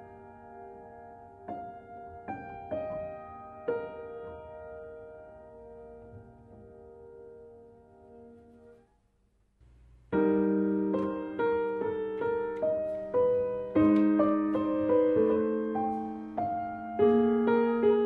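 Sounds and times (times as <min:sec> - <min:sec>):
piano melody: 0:00.0 - 0:08.9, 0:10.1 - 0:18.0.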